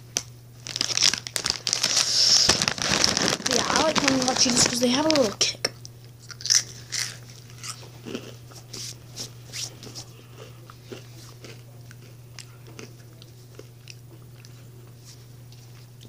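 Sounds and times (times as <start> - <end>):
steady low hum: 0.0 - 16.0
person crunching chips: 0.6 - 5.5, 6.2 - 8.9, 9.8 - 14.6.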